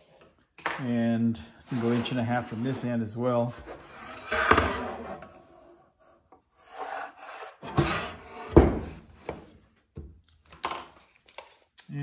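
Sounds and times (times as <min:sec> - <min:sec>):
slab scraping on workbench: 0:01.6 - 0:05.7, 0:06.6 - 0:09.5.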